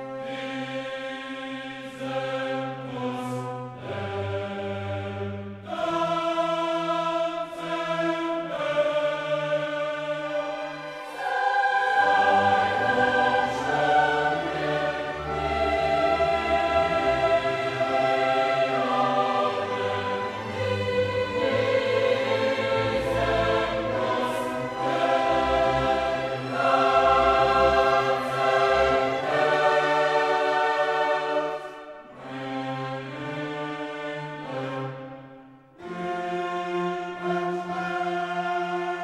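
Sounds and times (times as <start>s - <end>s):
choir singing sustained chords: 0.0s - 39.0s
orchestra playing: 10.2s - 35.2s.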